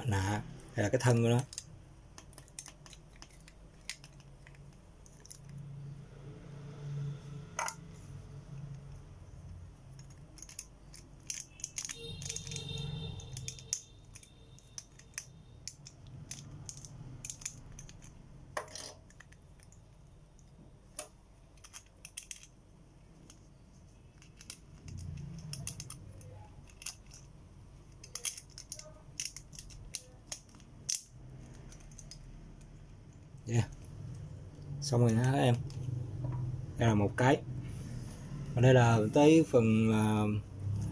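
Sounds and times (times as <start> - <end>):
small plastic clicks and clatter: 1.3 - 5.6, 9.9 - 19.8, 21.0 - 22.6, 24.2 - 27.3, 27.9 - 32.8.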